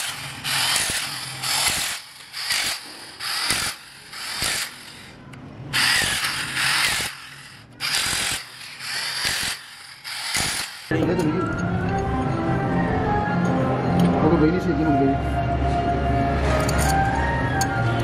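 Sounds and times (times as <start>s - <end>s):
impact wrench rattling: 0.0s - 5.1s, 5.8s - 11.0s.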